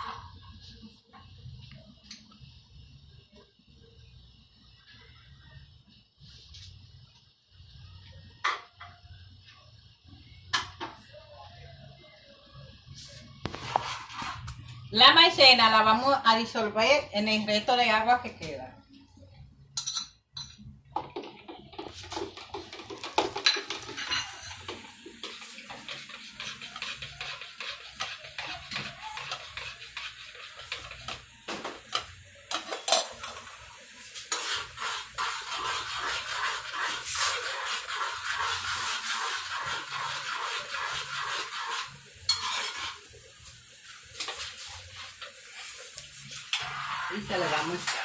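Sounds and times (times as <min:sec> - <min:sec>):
spoon stirring and clinking in cup: 0:19.8 - 0:31.2, 0:40.2 - 0:43.0.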